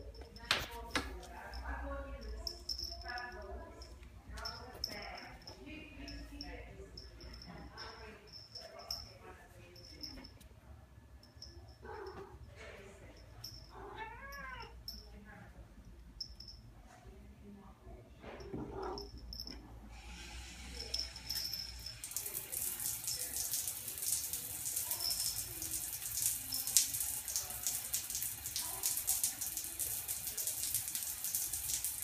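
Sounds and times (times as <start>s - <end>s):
shower spray hitting tiles: 20.6s - 32.0s.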